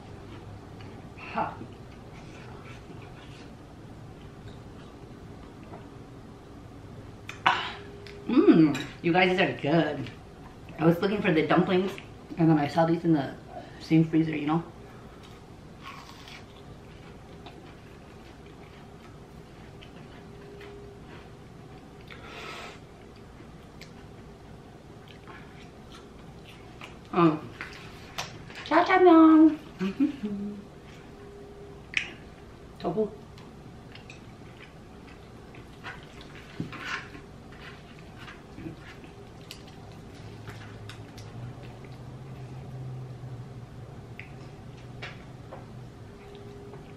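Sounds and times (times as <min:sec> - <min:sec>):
chewing fried food: 0:15.2 - 0:22.3, 0:33.3 - 0:43.1
wet chewing and lip smacks: 0:44.1 - 0:44.6.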